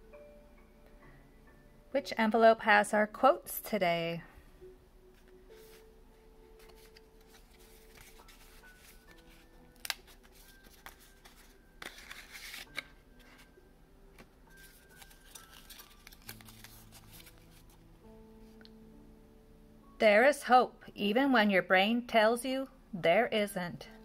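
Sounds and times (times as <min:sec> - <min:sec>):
soft background music: 0:00.0 - 0:24.0
paper rustling and crinkling: 0:05.2 - 0:05.9, 0:06.6 - 0:13.5, 0:14.2 - 0:17.8
paper snap: 0:09.8 - 0:12.9.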